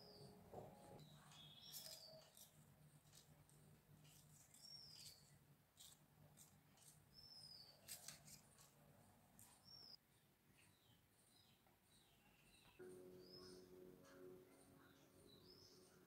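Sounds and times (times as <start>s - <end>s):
faint low hum: 8.3s - 16.0s.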